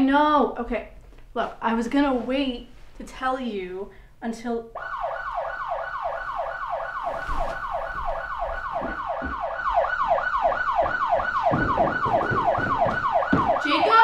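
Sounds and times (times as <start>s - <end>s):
alarm siren whooping: 4.8s - 14.0s
low thumps: 7.3s - 14.0s.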